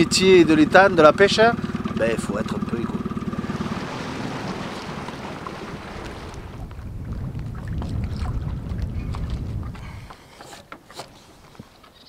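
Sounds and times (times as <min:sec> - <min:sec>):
wind rumbling on microphone: 0:03.3 - 0:10.4
water splashes and drips: 0:03.4 - 0:10.2.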